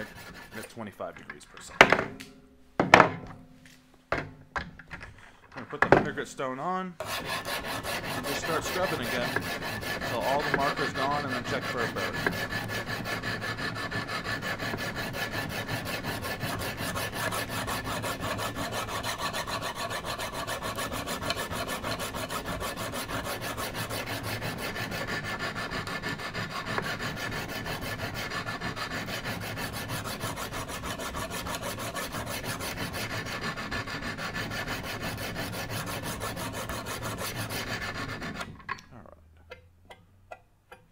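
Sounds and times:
sharpening stone rasping on knife: 7.0s - 38.4s.

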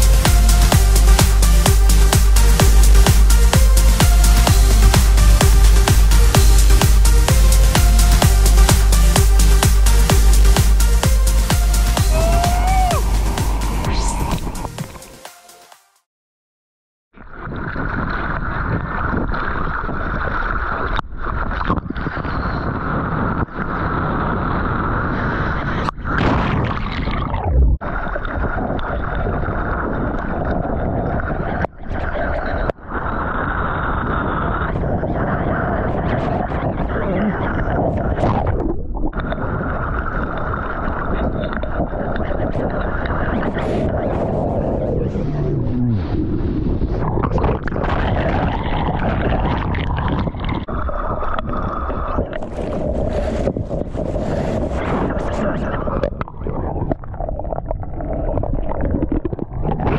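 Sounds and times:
water rushing and spraying: 0.0s - 15.2s
muffled underwater rumble: 17.2s - 59.9s.

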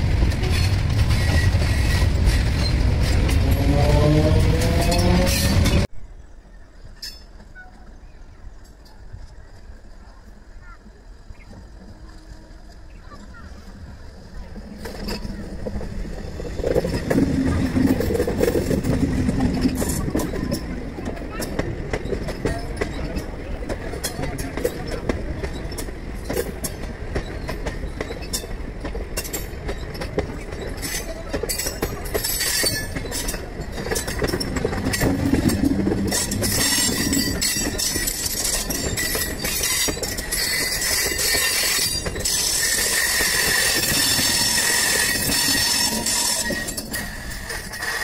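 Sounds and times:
wheels clattering over rail joints: 0.0s - 5.9s, 11.4s - 48.0s
train coaches rumbling past: 0.0s - 48.0s
high-pitched wheel squeal: 36.0s - 48.0s.

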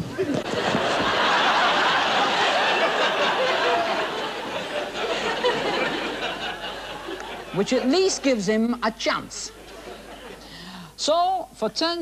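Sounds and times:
studio audience laughing: 0.2s - 8.4s, 9.4s - 10.6s.

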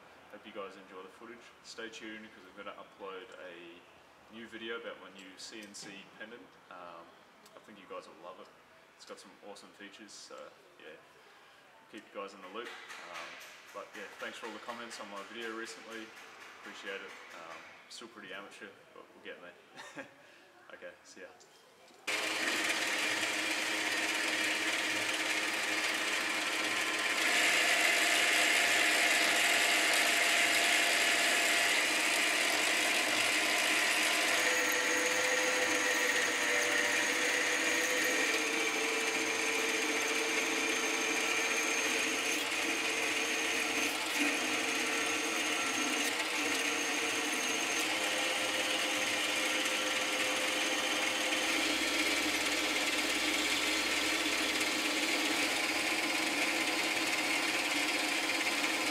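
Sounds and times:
metal lathe cutting: 22.1s - 58.9s.

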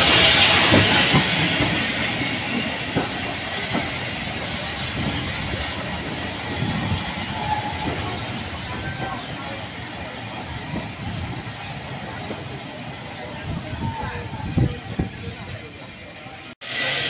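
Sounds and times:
steam locomotive hiss: 0.0s - 10.5s, 16.6s - 17.0s
train coaches rumbling past: 0.0s - 17.0s.

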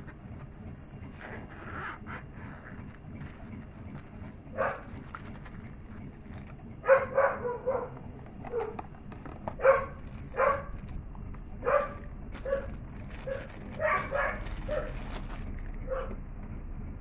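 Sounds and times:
dog barking: 4.5s - 5.0s, 6.8s - 8.9s, 9.5s - 10.9s, 11.6s - 15.1s, 15.8s - 16.2s.

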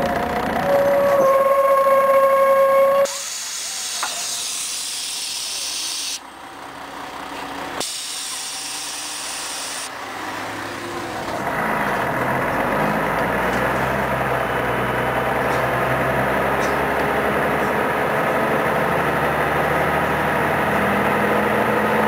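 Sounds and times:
bus diesel engine: 0.0s - 22.0s
compressed air hiss of doors: 3.1s - 6.2s, 7.8s - 9.9s.

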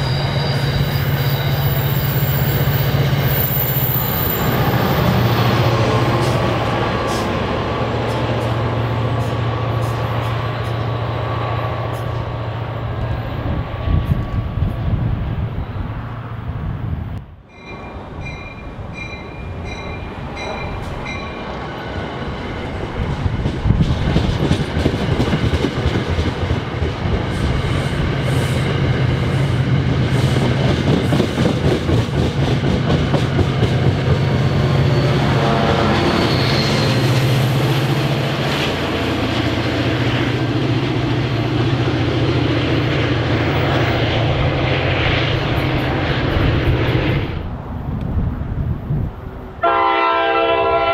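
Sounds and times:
bell ringing: 17.5s - 21.5s
train wheels clickety-clack: 22.9s - 39.5s.

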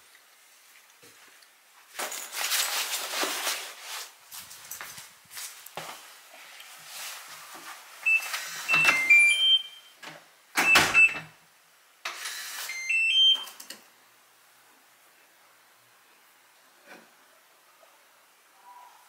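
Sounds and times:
digital door lock beeping: 8.1s - 9.9s, 10.6s - 11.3s, 12.7s - 13.6s.

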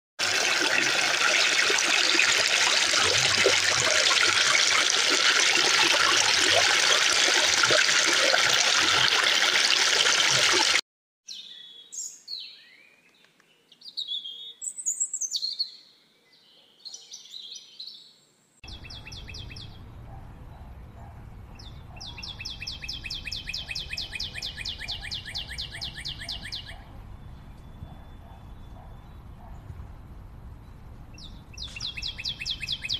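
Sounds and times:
stream water rushing: 0.2s - 10.8s
birdsong: 11.3s - 32.9s.

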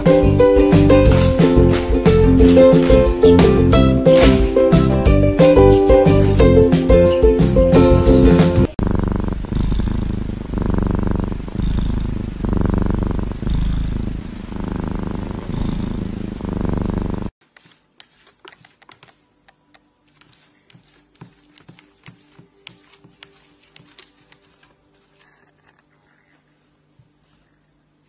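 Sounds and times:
kitten purring: 0.0s - 4.6s, 5.4s - 6.6s, 8.6s - 17.4s, 25.2s - 26.5s.

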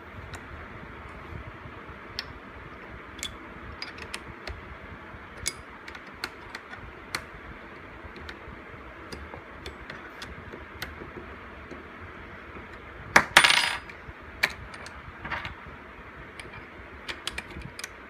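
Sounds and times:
steady background hiss: 0.0s - 18.0s
small metal parts clicking: 5.4s - 7.2s.

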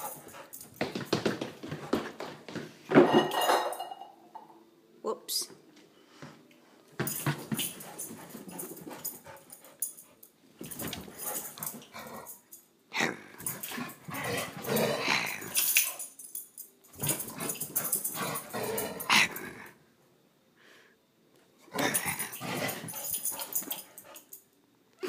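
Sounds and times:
dog growling: 13.0s - 15.7s, 17.3s - 19.8s, 21.7s - 23.1s.

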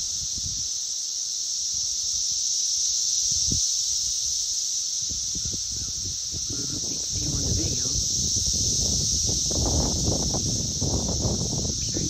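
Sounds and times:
cicadas droning: 0.0s - 12.0s
low rumbles on microphone: 6.4s - 12.0s.

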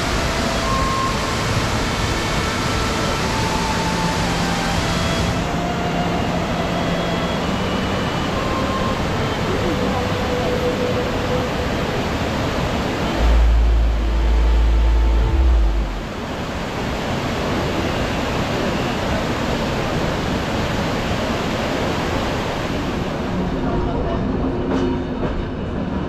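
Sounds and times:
waterfall rushing: 0.0s - 23.6s
deep rumble on microphone: 13.1s - 16.4s.

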